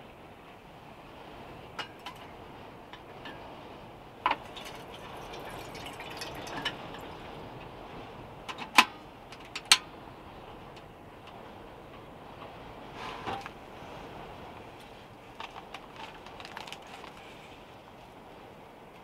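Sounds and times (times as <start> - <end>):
water pouring into kettle: 4.3 - 7.2.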